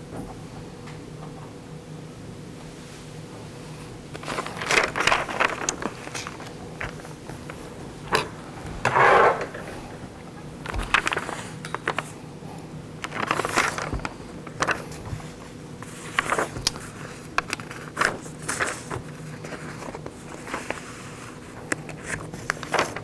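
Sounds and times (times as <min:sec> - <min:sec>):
paper rustling and pages turning: 0:04.1 - 0:12.3, 0:13.0 - 0:23.0.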